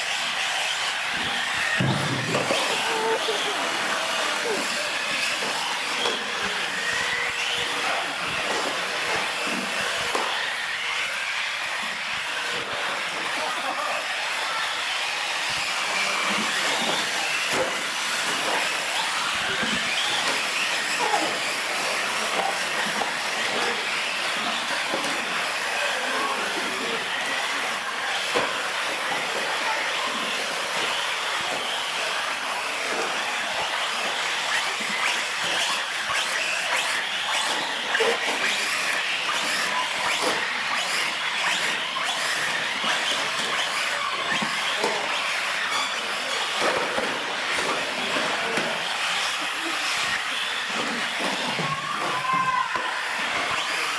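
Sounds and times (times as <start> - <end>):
rc car motor whine: 0.0 - 53.9
rc cars knocking: 0.7 - 10.4, 27.7 - 53.9.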